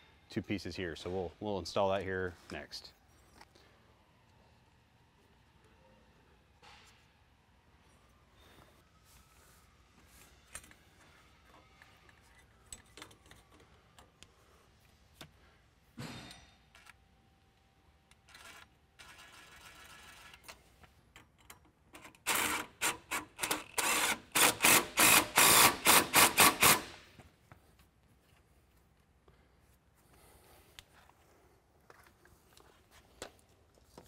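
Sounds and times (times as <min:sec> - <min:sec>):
cordless driver running in bursts: 0:22.3 - 0:27.0.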